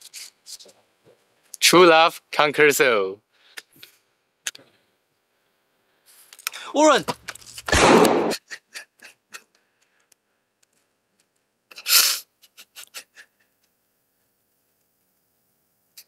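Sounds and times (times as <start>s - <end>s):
gunshot with echo: 7.7s - 8.4s.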